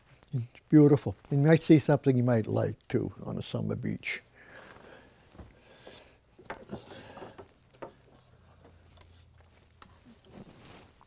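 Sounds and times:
light wooden knocks and rubs: 0:05.3 - 0:09.1.

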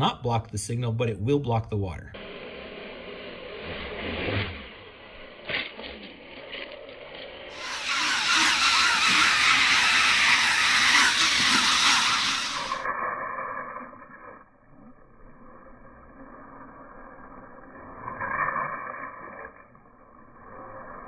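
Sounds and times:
drone props churning water: 0:02.2 - 0:13.0.

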